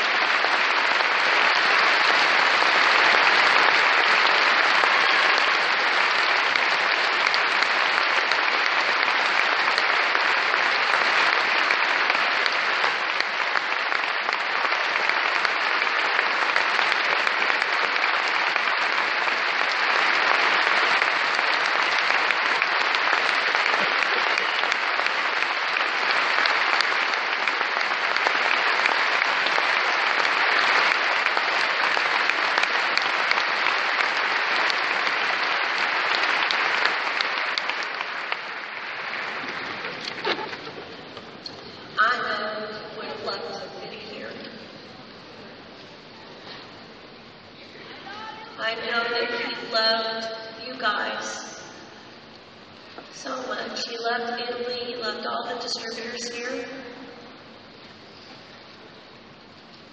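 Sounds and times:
large audience applauding: 0.0 - 42.5, 44.6 - 49.9.

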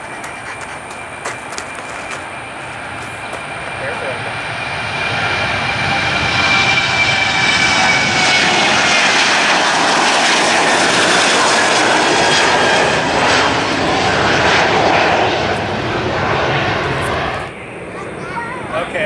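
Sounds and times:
jet engines roaring: 0.0 - 19.0.

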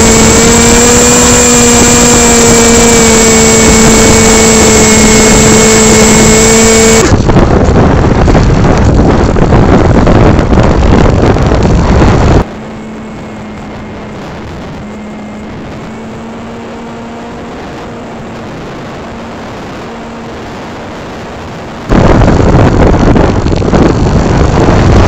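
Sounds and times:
model plane motor: 0.0 - 7.3
wind rushing: 0.0 - 25.0.

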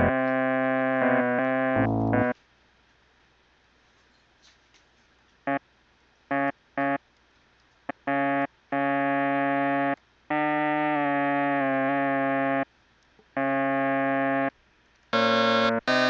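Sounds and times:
synthesized trombone notes: 0.0 - 2.4, 6.3 - 7.0, 7.9 - 12.7, 13.4 - 14.5, 15.2 - 16.0.

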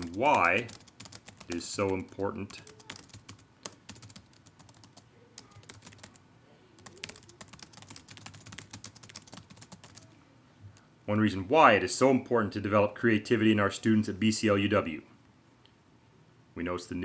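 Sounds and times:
computer keyboard keys clicking: 0.0 - 6.2, 6.8 - 10.1.

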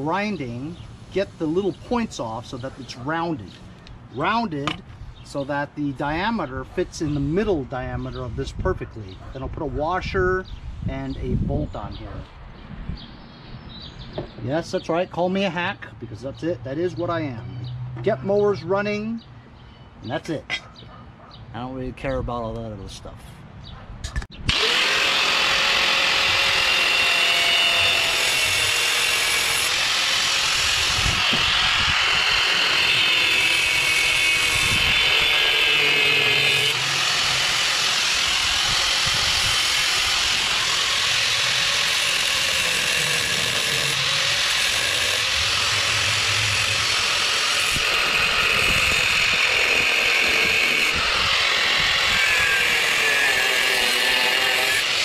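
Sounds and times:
angle grinder grinding metal: 24.5 - 55.0.

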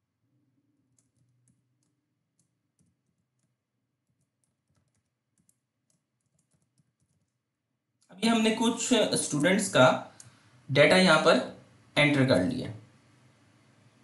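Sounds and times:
faint keyboard typing: 0.8 - 8.1, 9.2 - 10.4.

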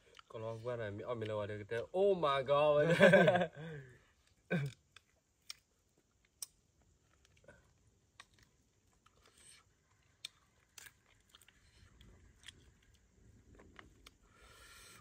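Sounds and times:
faint sharp clicks and crackles: 4.2 - 14.4.

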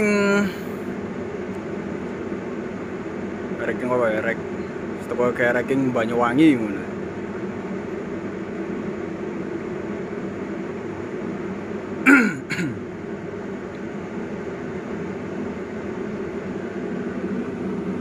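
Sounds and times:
steady low hum: 0.0 - 18.0
man clearing throat: 12.0 - 12.9.

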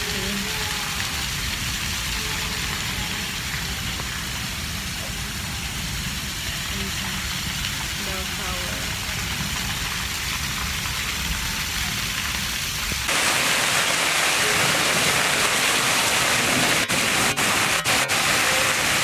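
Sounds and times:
heavy rain on stone paving: 0.0 - 19.0
water spilling off a roof: 0.0 - 19.0.

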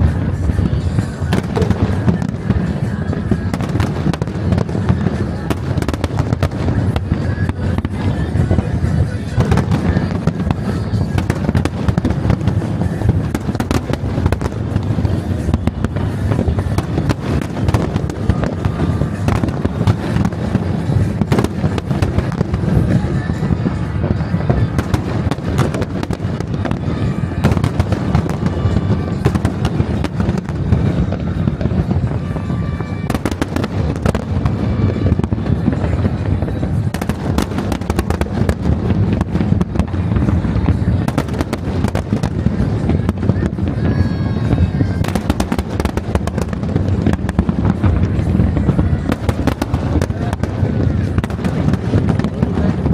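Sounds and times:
fireworks bangs and crackles: 0.0 - 52.9.

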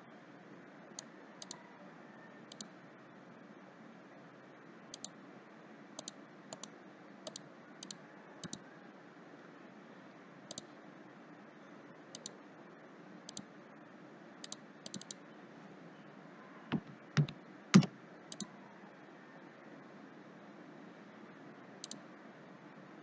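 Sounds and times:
faint computer mouse clicks: 1.0 - 1.6, 2.5 - 2.7, 5.0 - 5.2, 6.0 - 6.7, 7.3 - 8.6, 10.5 - 10.7, 12.2 - 12.4, 14.4 - 15.2, 21.8 - 22.0.

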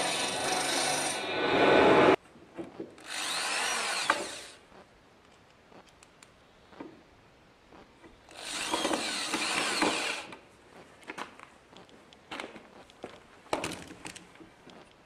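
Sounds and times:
electric drill drilling into wood: 3.0 - 4.6, 8.3 - 10.3.

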